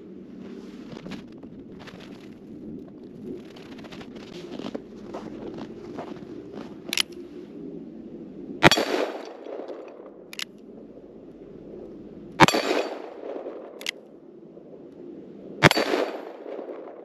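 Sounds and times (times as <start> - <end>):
revolver gunshots with echo: 8.6 - 9.5, 12.4 - 13.8, 15.6 - 16.9.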